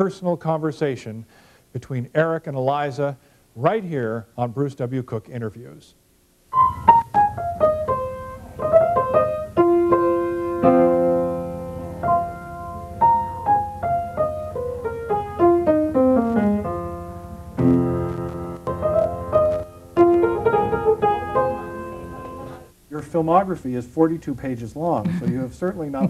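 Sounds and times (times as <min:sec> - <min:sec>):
grand piano playing: 0:06.5 - 0:22.7.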